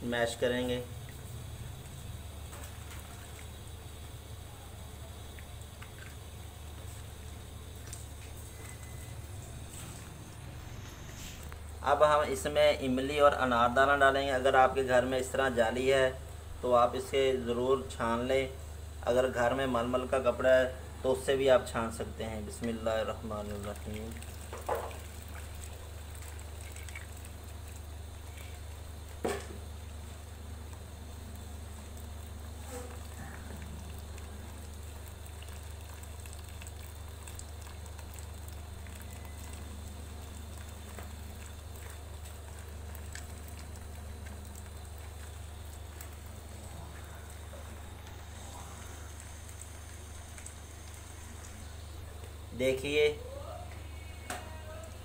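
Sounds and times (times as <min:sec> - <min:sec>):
steady low hum: 0:00.0 - 0:55.0
faint dripping: 0:00.3 - 0:09.6, 0:14.8 - 0:55.0
liquid pouring into strainer: 0:22.0 - 0:51.4.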